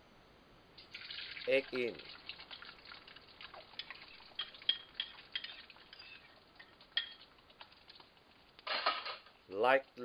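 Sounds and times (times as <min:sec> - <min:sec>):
egg frying in oil: 0:00.8 - 0:08.7
utensil scraping porcelain bowl: 0:03.8 - 0:08.1.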